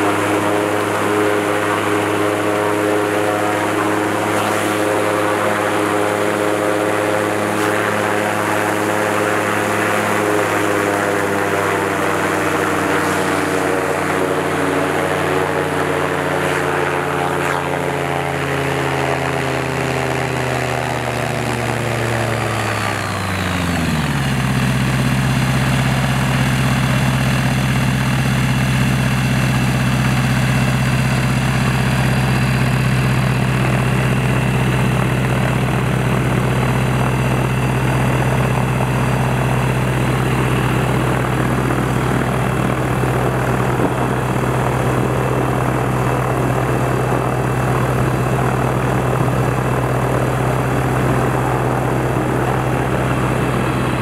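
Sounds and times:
aircraft engine and propeller: 0:00.0 - 0:54.0.

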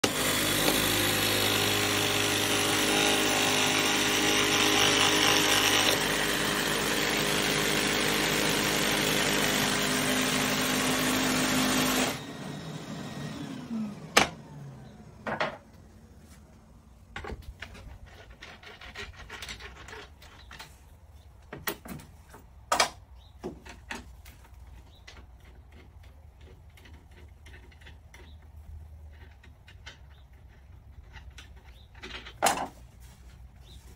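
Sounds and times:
power tool motor running: 0:00.0 - 0:15.2.

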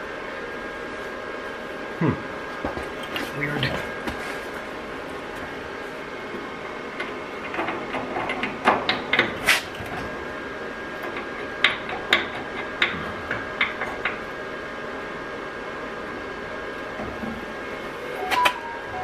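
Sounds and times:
steady shop hum: 0:00.0 - 0:19.0
faint high tone: 0:18.2 - 0:19.0.

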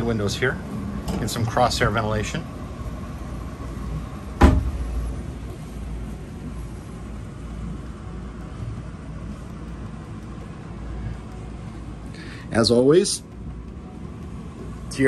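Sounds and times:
low cabin rumble: 0:00.0 - 0:15.0
sharp knock: 0:04.4 - 0:04.8.

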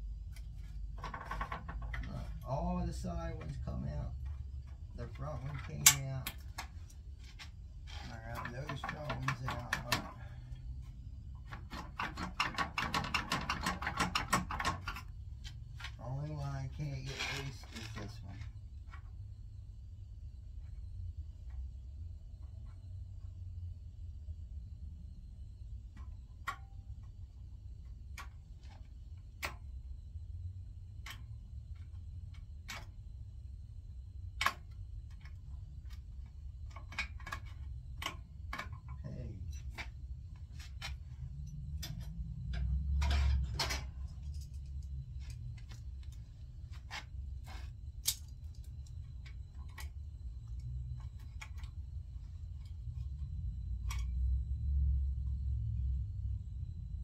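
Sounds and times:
hand tools clicking on metal: 0:05.4 - 0:06.7, 0:08.0 - 0:10.2
low hum: 0:14.8 - 0:57.0.

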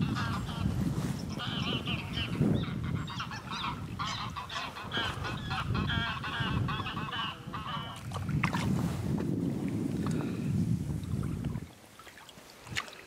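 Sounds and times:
geese honking in flight: 0:00.0 - 0:08.0.

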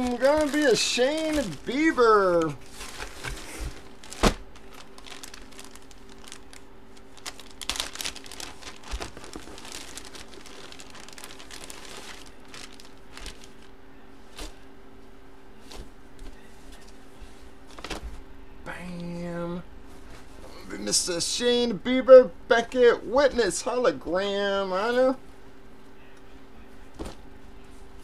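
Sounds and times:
plastic bag crinkling: 0:00.0 - 0:13.7
faint steady hum: 0:00.0 - 0:28.0.

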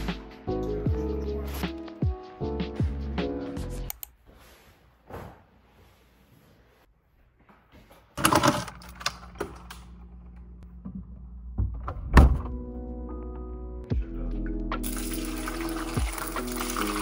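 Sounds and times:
soft music with held chords: 0:00.0 - 0:03.9, 0:12.4 - 0:17.0.

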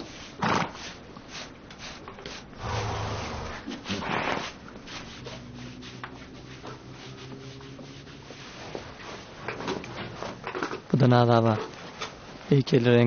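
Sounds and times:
horse snorting: 0:00.4 - 0:01.0, 0:02.6 - 0:04.7.

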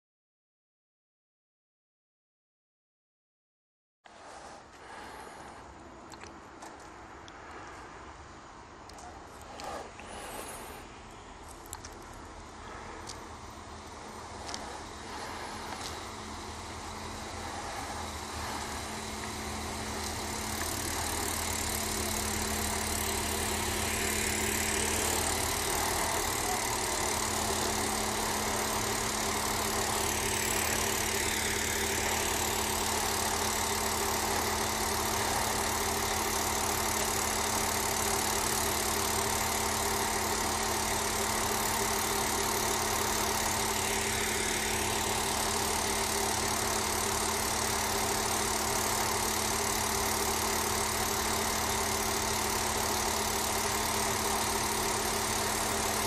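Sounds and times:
diesel train engine idling: 0:04.1 - 0:56.0.

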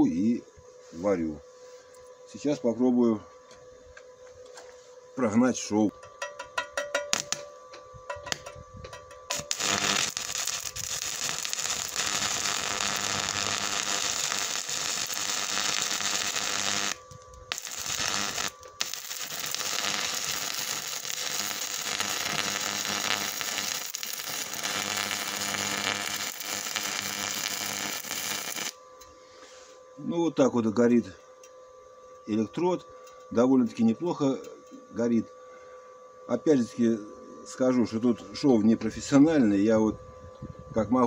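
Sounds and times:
welding arc hiss: 0:05.7 - 0:29.8.

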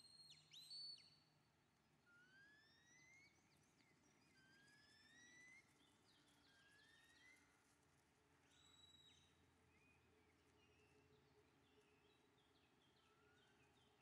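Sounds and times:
faint rising whistles: 0:02.1 - 0:05.8.

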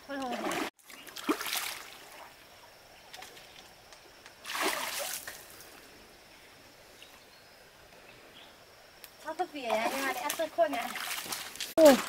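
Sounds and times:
water splashing: 0:00.1 - 0:02.4, 0:04.4 - 0:05.5, 0:09.6 - 0:12.0.

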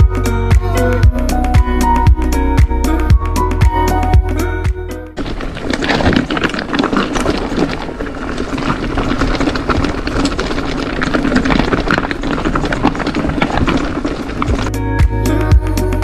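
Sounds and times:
bike tyres crunching over rocks: 0:05.2 - 0:15.3
bike rattling: 0:05.2 - 0:16.0
wind rumble on microphone: 0:05.2 - 0:16.0.

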